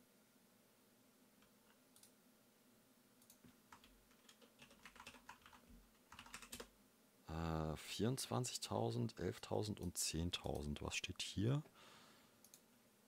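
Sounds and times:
computer keyboard typing: 0:03.2 - 0:06.7.

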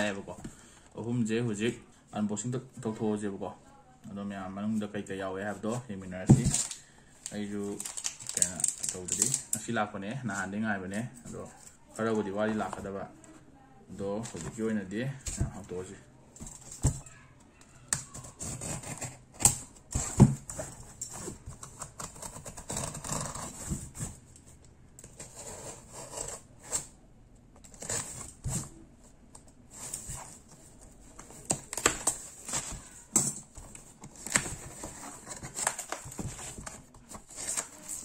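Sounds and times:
cardboard rustling: 0:05.4 - 0:09.6, 0:18.0 - 0:24.3, 0:27.6 - 0:38.0.

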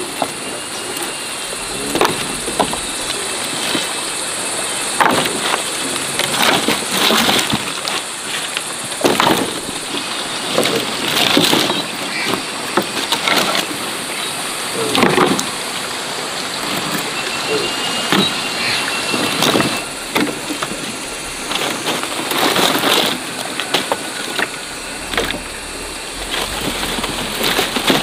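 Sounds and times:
steady high hiss: 0:00.0 - 0:28.0
branches cracking and rustling: 0:19.1 - 0:28.0.

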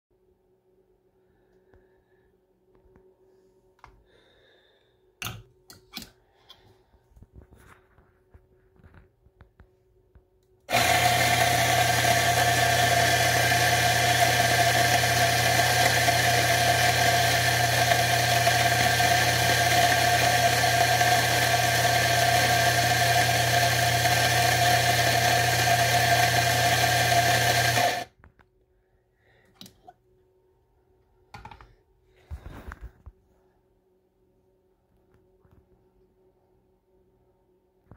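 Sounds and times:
espresso grinder grinding coffee: 0:10.7 - 0:28.1.

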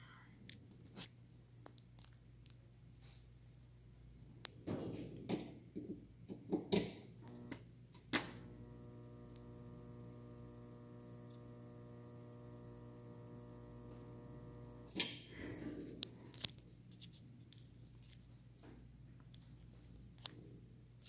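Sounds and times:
electrical hum: 0:00.0 - 0:21.0
faint high whine: 0:07.2 - 0:15.2.

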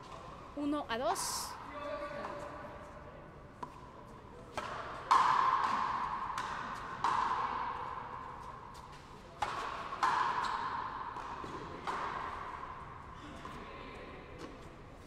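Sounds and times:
ball hitting racket and wall: 0:04.4 - 0:13.5.

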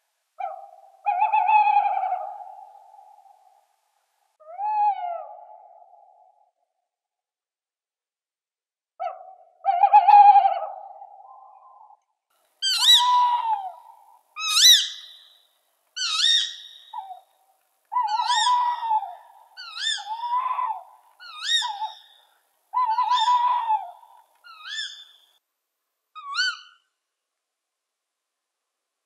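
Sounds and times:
owl calling: 0:00.4 - 0:03.6, 0:04.4 - 0:06.3, 0:09.0 - 0:12.0, 0:12.6 - 0:15.4, 0:16.0 - 0:17.3, 0:17.9 - 0:25.4, 0:26.2 - 0:26.9.

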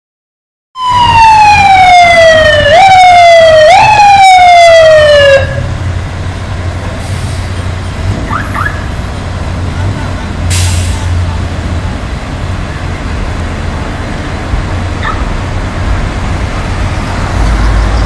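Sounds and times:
fire truck siren: 0:00.8 - 0:06.4, 0:07.0 - 0:09.8, 0:14.1 - 0:18.0
truck engine rumbling: 0:00.8 - 0:18.0.

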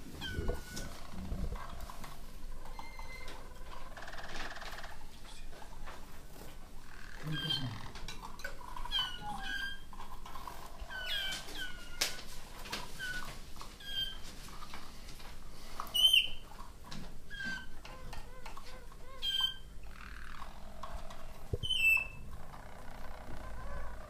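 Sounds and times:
canaries chirping: 0:00.1 - 0:05.4, 0:06.3 - 0:12.2, 0:12.8 - 0:14.3, 0:15.8 - 0:16.6, 0:17.3 - 0:22.6
low repeated bird notes: 0:06.8 - 0:08.0, 0:19.1 - 0:24.0.

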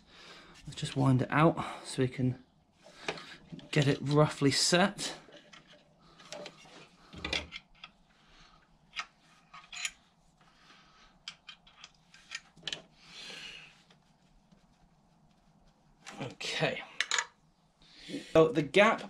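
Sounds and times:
soft rustle: 0:07.9 - 0:11.2, 0:11.8 - 0:16.8
small metallic clicks and taps: 0:11.2 - 0:12.9.

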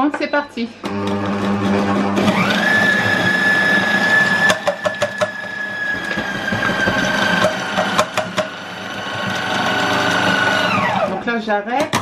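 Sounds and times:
kitchen robot motor whine: 0:00.9 - 0:11.3
sharp knocks: 0:06.2 - 0:08.6.

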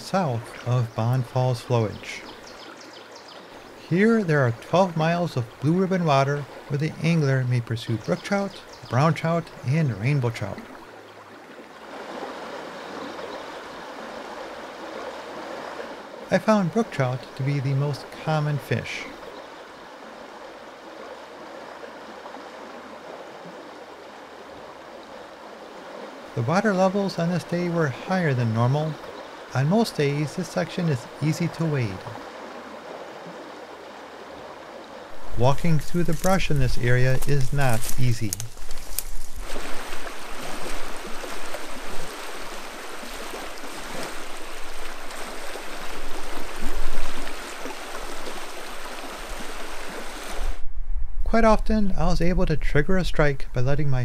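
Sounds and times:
river water rushing: 0:00.0 - 0:50.6.

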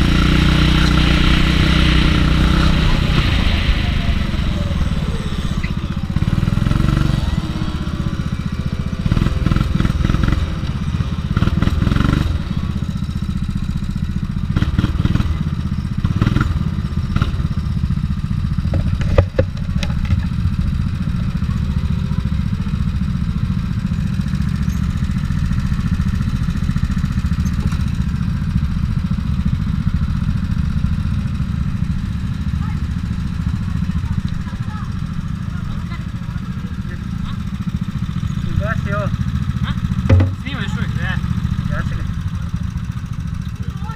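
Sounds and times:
go-kart engine running: 0:00.0 - 0:43.9
sharp knock: 0:40.1 - 0:40.4.

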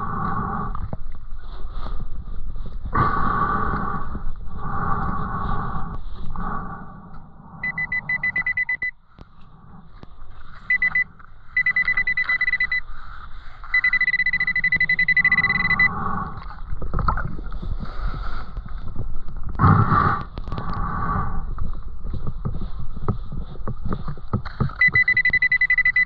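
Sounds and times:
muffled underwater rumble: 0:00.0 - 0:24.9
pulsed buzzing beep: 0:07.6 - 0:09.0, 0:10.6 - 0:12.9, 0:13.7 - 0:16.0, 0:24.8 - 0:26.0.

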